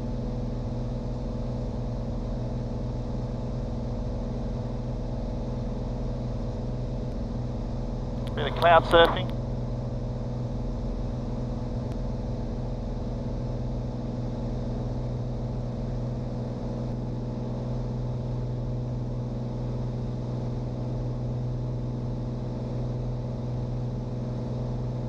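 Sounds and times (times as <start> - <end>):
aircraft engine and propeller drone: 8.4 - 9.3.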